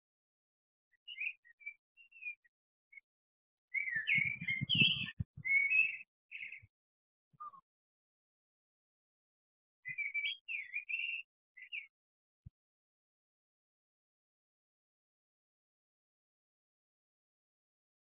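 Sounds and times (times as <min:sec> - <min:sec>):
songbird singing: 0:00.9 - 0:03.1, 0:03.7 - 0:06.7, 0:07.3 - 0:07.7, 0:09.8 - 0:12.0
low thumps and rumble: 0:04.2 - 0:05.4.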